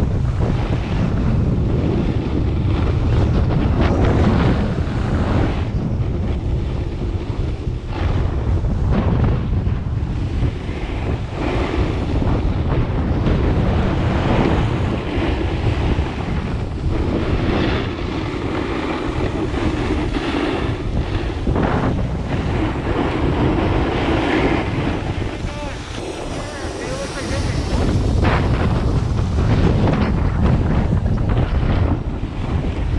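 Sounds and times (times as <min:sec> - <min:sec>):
wind buffeting microphone: 0:00.0 - 0:32.9
edges scraping packed snow: 0:17.0 - 0:30.6.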